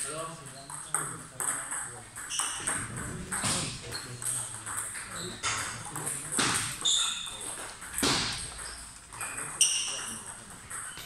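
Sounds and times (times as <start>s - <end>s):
distant table tennis hits: 0.0s - 11.0s
table tennis ball pocks: 2.2s - 11.0s.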